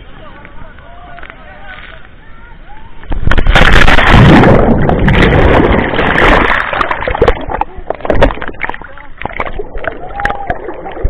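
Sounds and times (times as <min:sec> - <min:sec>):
underwater gurgling: 0:03.0 - 0:11.0
seawater rushing and splashing: 0:03.1 - 0:11.0.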